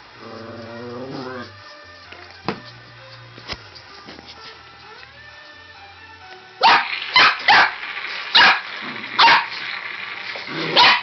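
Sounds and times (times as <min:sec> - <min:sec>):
puppy barking sharply: 0:06.6 - 0:09.6, 0:10.7 - 0:11.0.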